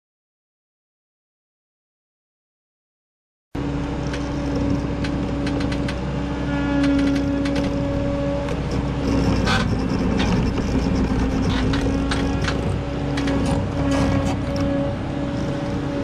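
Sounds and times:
diesel engine droning: 0:03.6 - 0:16.0
machine clanks and scrapes: 0:04.0 - 0:16.0.

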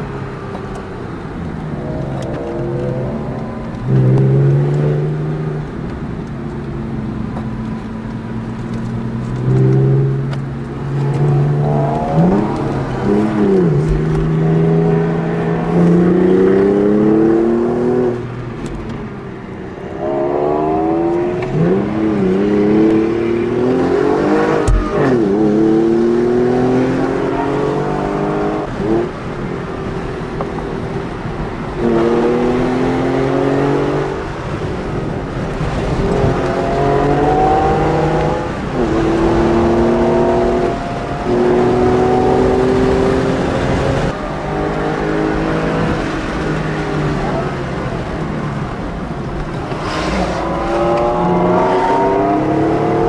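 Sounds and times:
car engine accelerating hard: 0:19.9 - 0:53.0.

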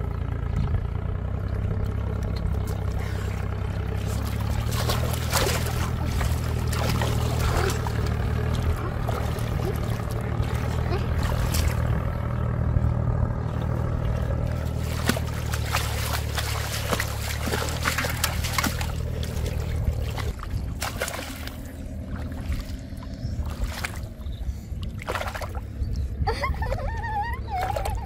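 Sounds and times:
steady low rumble: 0:00.0 - 0:28.0
water splashing and sloshing: 0:01.2 - 0:28.0
sharp splashes: 0:02.6 - 0:12.2, 0:13.4 - 0:24.2, 0:24.8 - 0:25.8.

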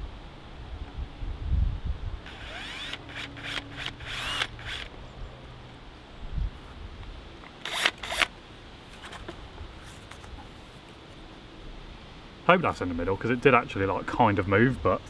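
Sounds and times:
cordless drill cutting plastic: 0:02.3 - 0:04.9, 0:07.6 - 0:08.3.

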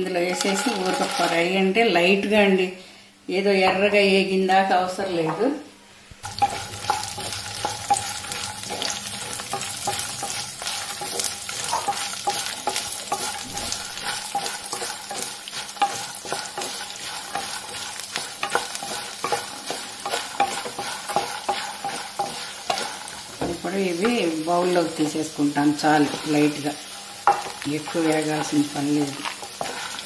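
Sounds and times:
seeds sizzling in oil: 0:00.0 - 0:01.5, 0:06.1 - 0:30.0
seeds clicking and scraping pan: 0:00.2 - 0:01.5, 0:06.2 - 0:23.2, 0:26.0 - 0:30.0.

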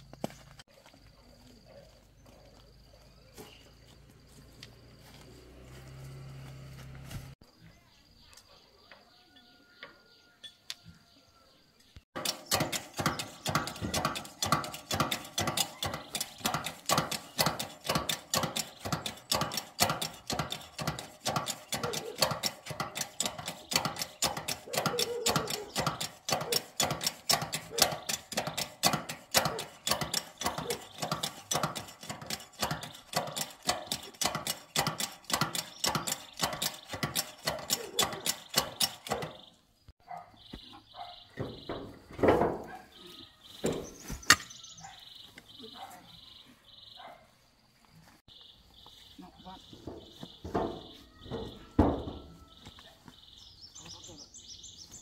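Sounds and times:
hand tool strokes: 0:12.2 - 0:39.5.

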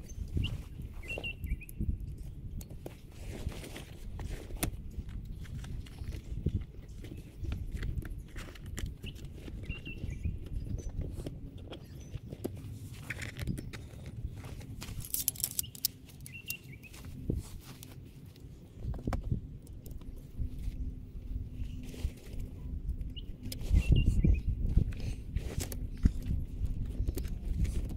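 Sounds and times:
wind rumble on microphone: 0:00.0 - 0:27.9.

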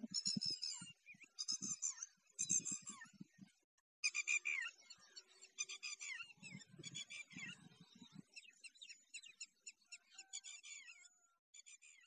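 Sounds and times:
small birds chirping: 0:00.0 - 0:11.1.

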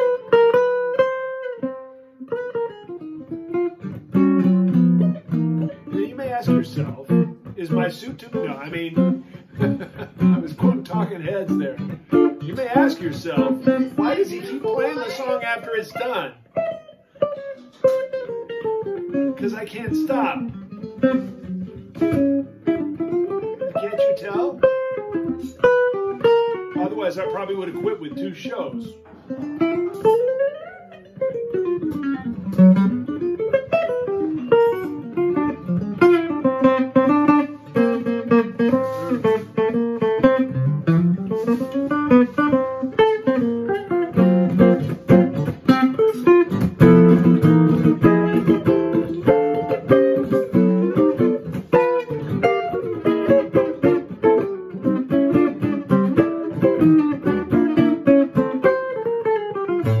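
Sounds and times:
jazz electric guitar solo: 0:00.0 - 1:00.0.

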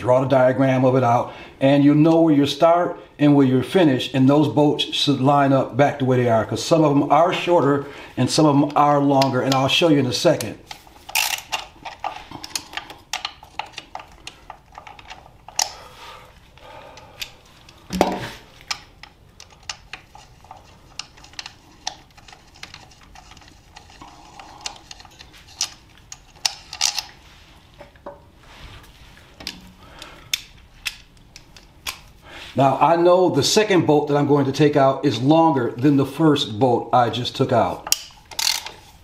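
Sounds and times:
socket ratchet clicking: 0:37.9 - 0:38.8.

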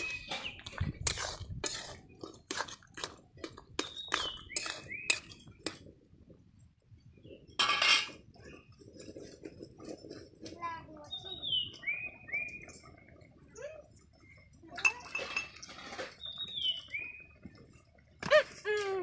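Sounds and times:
bird chirping: 0:00.0 - 0:00.8, 0:03.8 - 0:05.6, 0:11.0 - 0:14.6, 0:16.1 - 0:17.4
ladle clinking against pot: 0:03.8 - 0:05.8.

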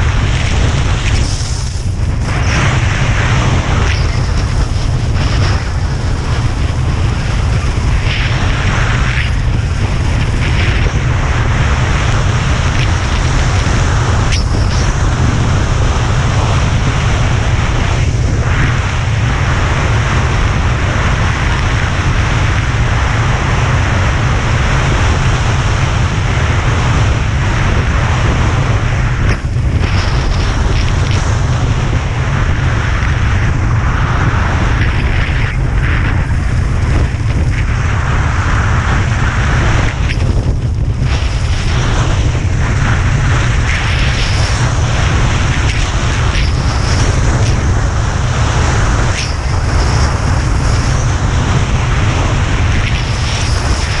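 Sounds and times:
wind buffeting microphone: 0:00.0 - 0:54.0
skis hissing on snow: 0:00.2 - 0:16.4, 0:34.1 - 0:54.0.

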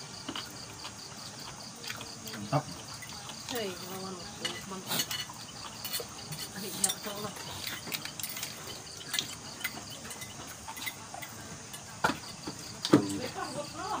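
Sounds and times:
insect chirring: 0:00.0 - 0:14.0
spoons clinking on ceramic dishes: 0:04.3 - 0:11.9.

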